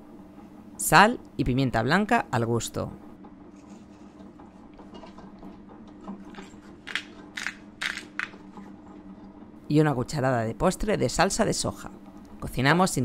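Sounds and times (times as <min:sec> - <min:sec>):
cooking machine low hum: 0:00.0 - 0:13.0
pepper grinder crunching: 0:06.4 - 0:08.4.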